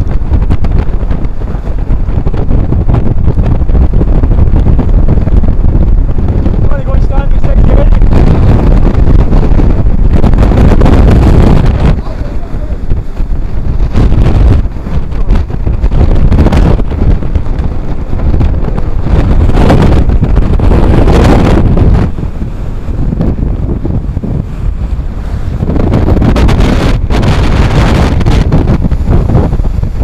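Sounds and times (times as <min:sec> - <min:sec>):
strong wind on microphone: 0:00.0 - 0:30.0.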